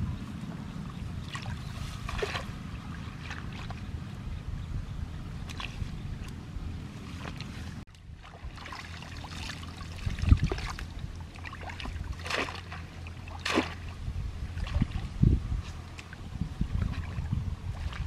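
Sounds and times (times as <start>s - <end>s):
steady low hum: 0.0s - 18.0s
hands splashing in muddy water: 1.2s - 3.8s, 8.2s - 14.0s.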